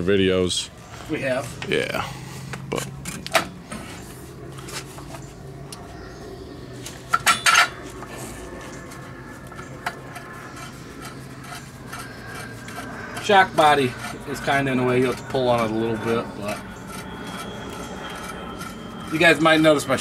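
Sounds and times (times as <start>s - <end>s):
metal tools clinking: 7.1s - 7.8s.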